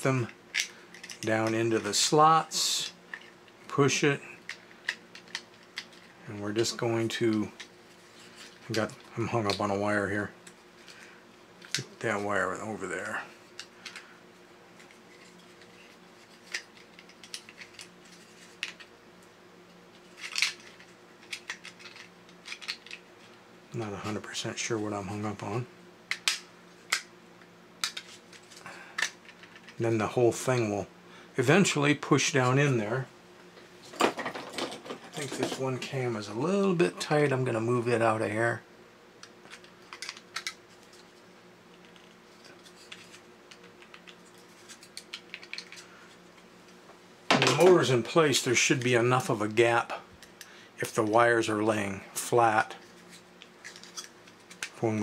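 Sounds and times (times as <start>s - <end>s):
faint steady hum: 0.0s - 55.0s
plastic parts clicking and clattering: 0.5s - 1.6s, 16.4s - 18.9s, 20.2s - 23.0s, 33.9s - 35.6s, 39.4s - 41.0s, 41.8s - 45.8s, 53.6s - 54.8s.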